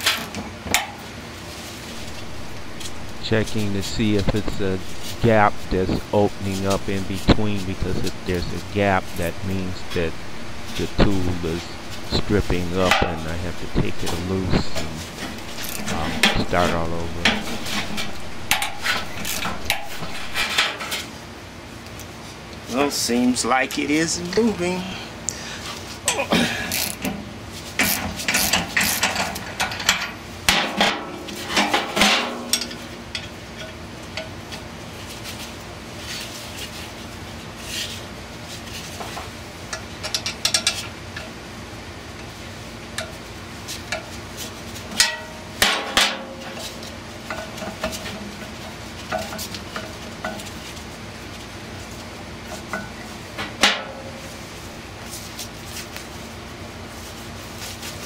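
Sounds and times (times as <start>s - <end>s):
hand tools clanking on metal: 2.0s - 21.1s, 27.8s - 34.3s, 39.7s - 41.3s, 44.9s - 48.2s.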